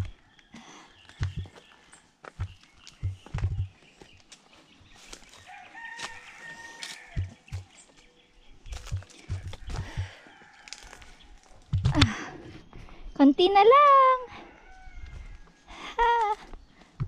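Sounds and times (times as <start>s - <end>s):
footsteps on rock: 1.0s - 8.1s, 8.7s - 12.2s.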